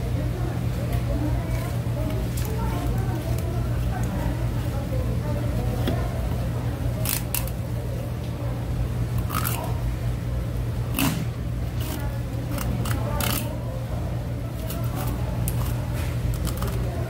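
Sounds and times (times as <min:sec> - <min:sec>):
steady low hum: 0:00.0 - 0:17.0
knife crunching through fish bones: 0:14.6 - 0:16.9.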